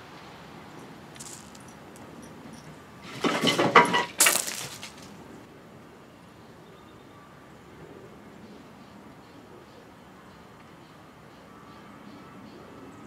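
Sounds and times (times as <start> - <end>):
seeds and hulls clattering: 0.8 - 5.3.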